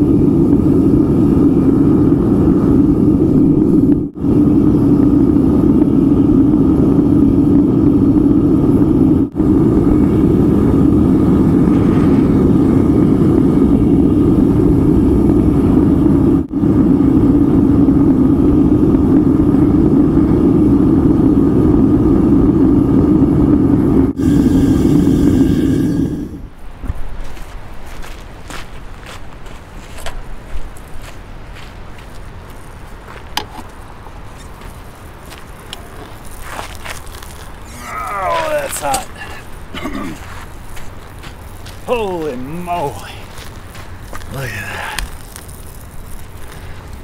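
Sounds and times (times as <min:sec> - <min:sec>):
furnace rumbling: 0:34.0 - 0:47.0.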